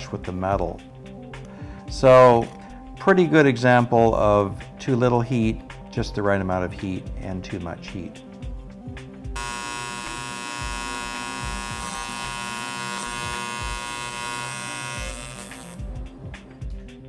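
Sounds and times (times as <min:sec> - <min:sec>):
welding arc buzzing: 0:09.4 - 0:15.8.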